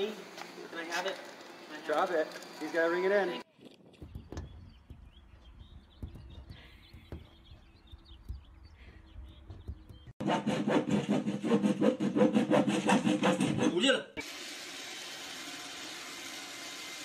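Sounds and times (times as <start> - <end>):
saw cutting wooden board: 10.2 - 17.0.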